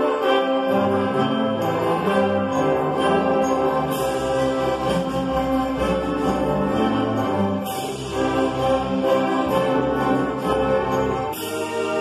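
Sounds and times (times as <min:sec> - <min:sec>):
string orchestra playing: 0:00.0 - 0:12.0.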